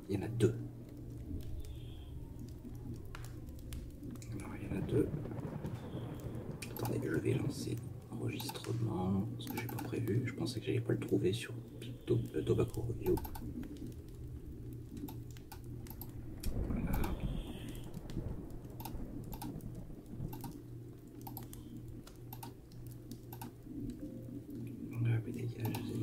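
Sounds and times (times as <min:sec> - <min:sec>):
low steady hum: 0:00.0 - 0:26.0
keyboard typing: 0:06.6 - 0:07.0, 0:08.4 - 0:08.7, 0:09.4 - 0:10.0, 0:13.0 - 0:13.5, 0:18.8 - 0:19.5, 0:20.3 - 0:20.6, 0:21.2 - 0:21.6, 0:22.2 - 0:22.6, 0:23.2 - 0:23.6, 0:25.6 - 0:26.0.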